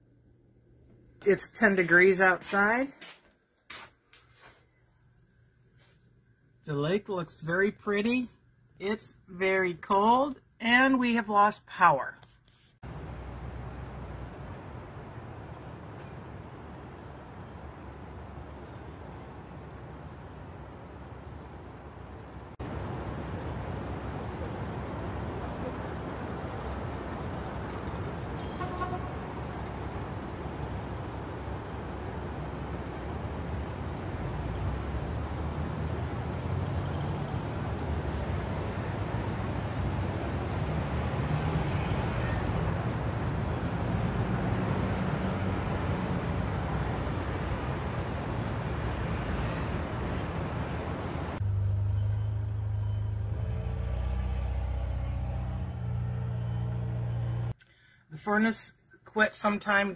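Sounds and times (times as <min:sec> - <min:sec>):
engine rumble: 0:12.8 - 0:57.6
diesel engine drone: 0:12.9 - 0:57.6.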